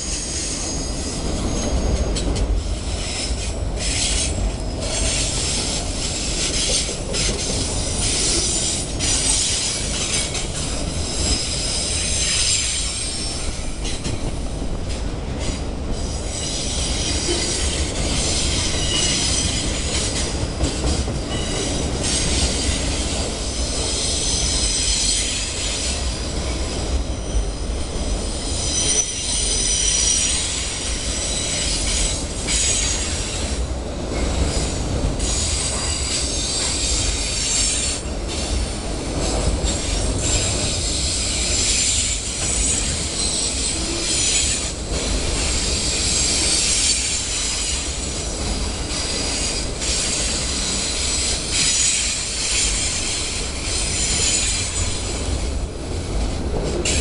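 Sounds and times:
train wheels rumbling on rail: 0:00.0 - 0:57.0
high-pitched wheel squeal: 0:28.3 - 0:33.1.

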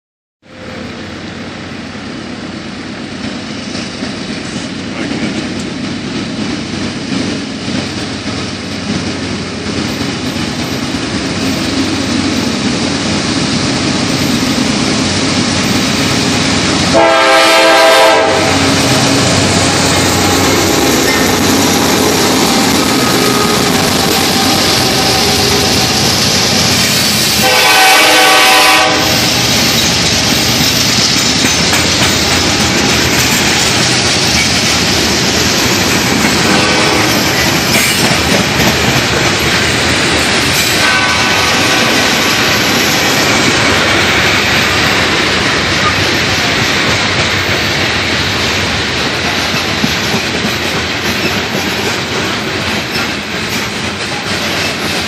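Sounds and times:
diesel locomotive rumble: 0:00.4 - 0:55.0
train wheels rolling: 0:00.6 - 0:55.0
train horn blasts: 0:16.8 - 0:26.2, 0:27.3 - 0:29.4, 0:36.5 - 0:37.2, 0:40.7 - 0:42.3.

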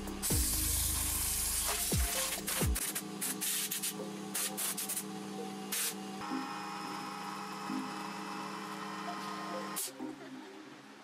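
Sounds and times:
steady hum: 0:00.0 - 0:09.8
spray bottle spraying: 0:00.2 - 0:05.0, 0:05.7 - 0:06.0.

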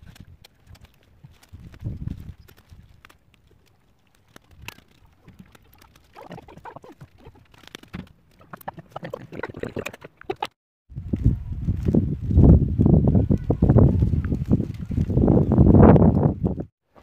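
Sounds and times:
willow rods rustling and crackling: 0:00.0 - 0:09.9, 0:11.0 - 0:16.6.

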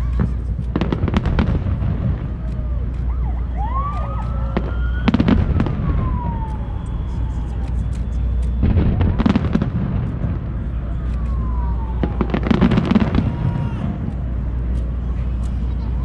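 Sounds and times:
fireworks bangs: 0:00.0 - 0:03.2, 0:03.8 - 0:15.7
low rumble: 0:00.0 - 0:16.0
firework whistle: 0:03.3 - 0:14.2.

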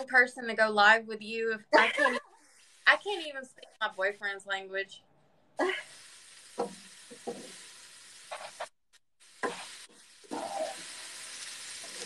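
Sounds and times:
food sizzling in a pan: 0:01.8 - 0:04.2, 0:05.6 - 0:12.0.

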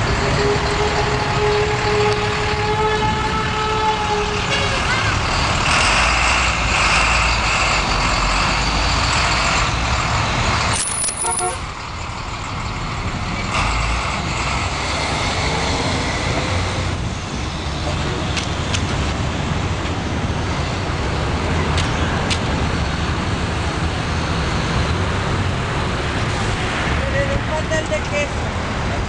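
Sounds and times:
road noise: 0:00.0 - 0:29.0
large vehicle passing: 0:11.5 - 0:29.0.

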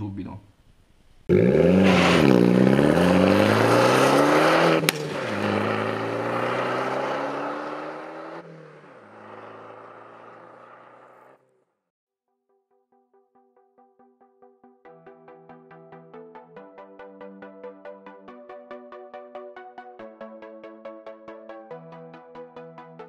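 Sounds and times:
car engine accelerating: 0:01.3 - 0:11.5.

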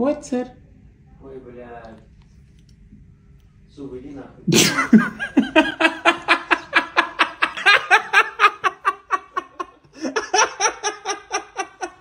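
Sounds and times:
man laughing hard: 0:04.5 - 0:12.0.

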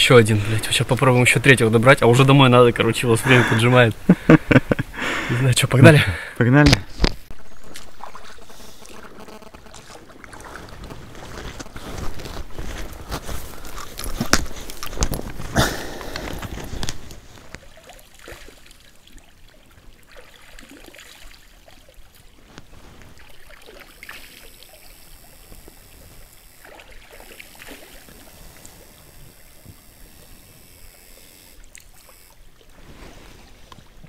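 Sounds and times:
person wading in stream: 0:00.0 - 0:06.3, 0:07.2 - 0:34.0
stream water sloshing: 0:06.8 - 0:34.0.

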